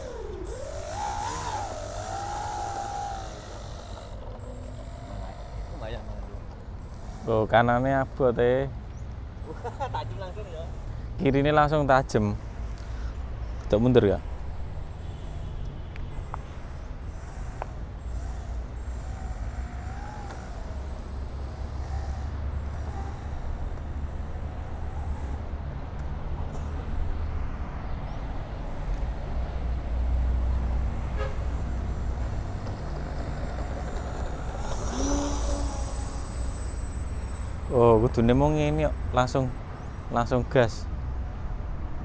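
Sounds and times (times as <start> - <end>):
electric motor and propeller whine: 0.0 - 8.2, 14.0 - 25.6, 28.2 - 39.1.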